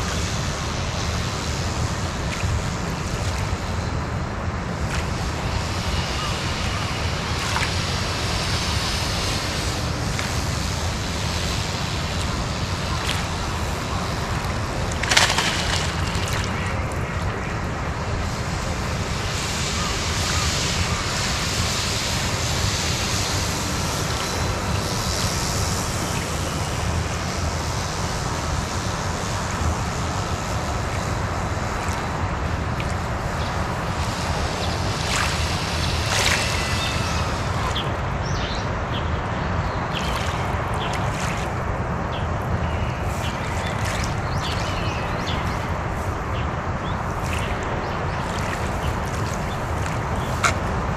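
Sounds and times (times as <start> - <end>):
waves washing on shore: 0.0 - 50.9
wind noise on microphone: 0.0 - 50.9
small electric motor whine: 33.4 - 38.6.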